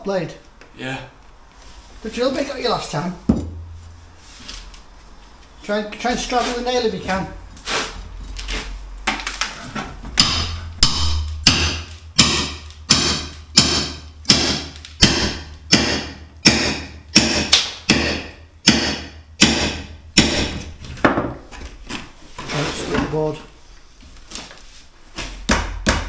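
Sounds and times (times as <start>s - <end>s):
hammer blows ringing: 10.2s - 20.7s.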